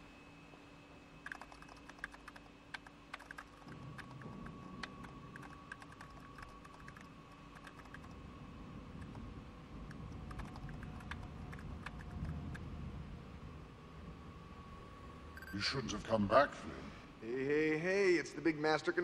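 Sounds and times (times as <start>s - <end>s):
steady electronic hum: 0.0s - 19.0s
keyboard typing: 1.2s - 8.2s, 8.9s - 12.7s.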